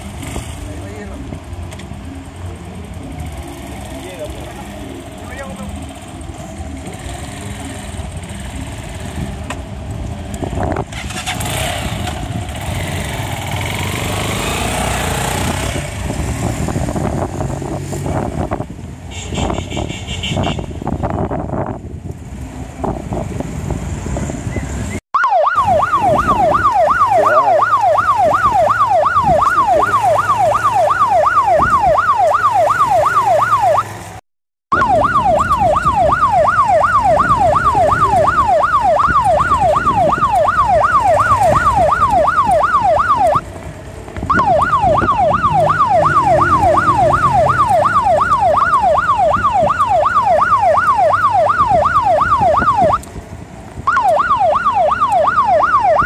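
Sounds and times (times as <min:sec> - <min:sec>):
motorcycle engine: 0:00.0 - 0:56.0
electronic siren yelping: 0:25.2 - 0:33.9, 0:34.7 - 0:43.4, 0:44.3 - 0:53.1, 0:53.8 - 0:56.0.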